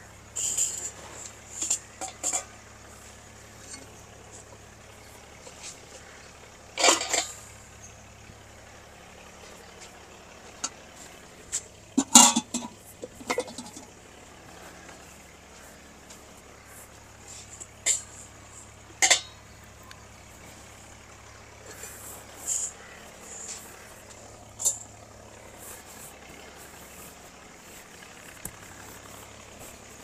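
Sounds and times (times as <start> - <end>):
low hum of flour mill: 0.0 - 30.0
cooking pots clinking and clattering: 0.4 - 2.6, 6.8 - 7.5, 11.9 - 14.0, 17.6 - 18.2, 19.0 - 19.4.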